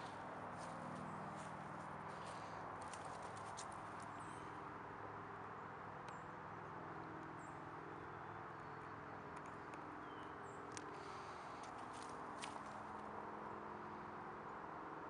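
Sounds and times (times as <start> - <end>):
footsteps on dry grass: 0.0 - 4.1, 11.6 - 12.9.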